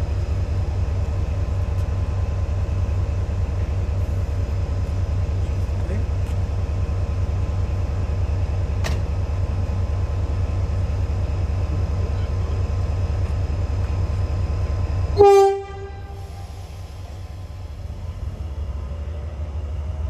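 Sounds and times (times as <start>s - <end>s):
train rumbling: 0.0s - 20.0s
train horn blast: 15.2s - 16.4s.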